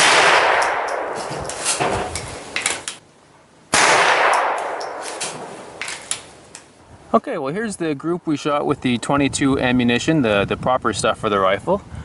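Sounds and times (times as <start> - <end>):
rifle shots echoing: 0.0 - 1.3, 3.7 - 6.1.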